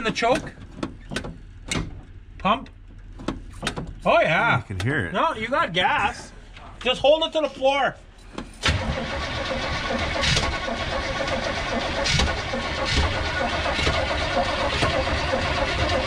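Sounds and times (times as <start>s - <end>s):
starter cranking engine: 8.6s - 16.0s.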